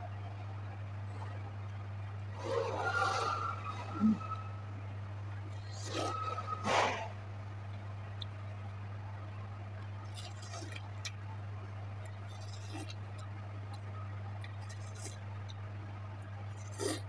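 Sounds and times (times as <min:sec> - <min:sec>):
low hum: 0:00.0 - 0:17.0
person chewing watermelon: 0:09.8 - 0:11.3, 0:12.0 - 0:17.0.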